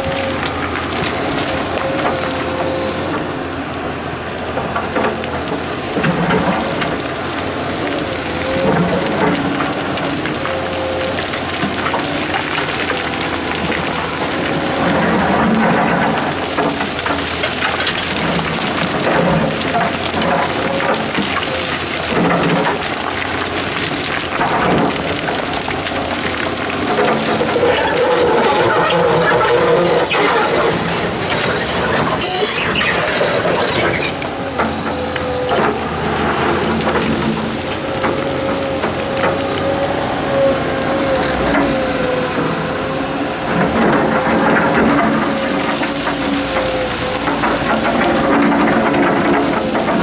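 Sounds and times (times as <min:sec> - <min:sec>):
excavator engine and hydraulics whining: 0:00.0 - 0:50.0
stones and gravel scraping: 0:08.4 - 0:39.2, 0:43.6 - 0:50.0.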